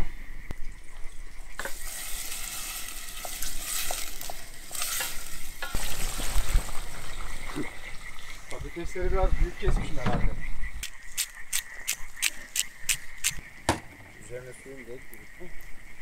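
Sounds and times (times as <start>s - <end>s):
onions sizzling in oil: 1.4s - 8.6s.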